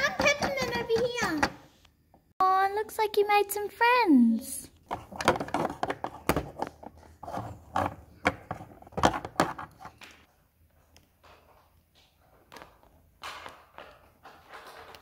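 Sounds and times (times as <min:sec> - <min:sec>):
toy hooves tapping on plastic: 0:00.0 - 0:01.6.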